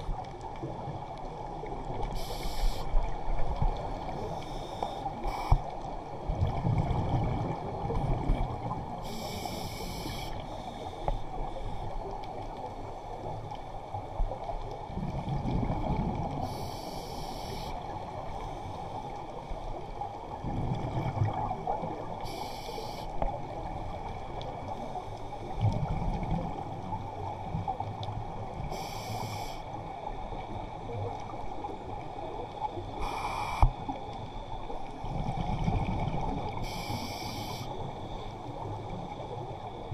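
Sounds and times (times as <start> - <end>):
regulator inhalation hiss: 2.2 - 3.0, 9.0 - 11.1, 16.4 - 17.8, 22.2 - 23.2, 28.7 - 29.6, 33.0 - 33.8, 36.6 - 37.8.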